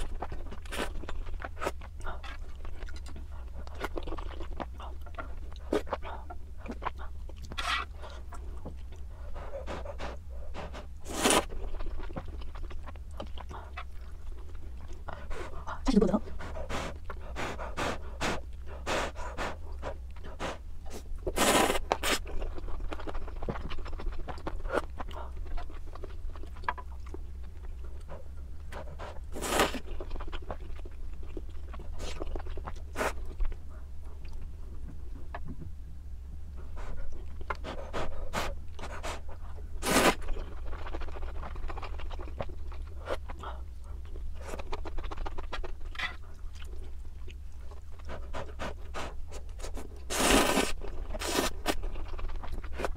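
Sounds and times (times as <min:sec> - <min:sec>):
person chewing: 0:00.0 - 0:35.5, 0:36.6 - 0:52.9
noodle slurps: 0:09.7 - 0:11.5, 0:21.3 - 0:22.2, 0:39.8 - 0:40.2, 0:48.5 - 0:51.8.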